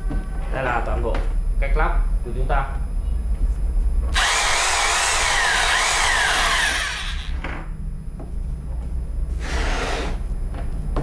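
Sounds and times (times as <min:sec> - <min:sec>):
hammer drill motor whine: 0:04.1 - 0:07.4.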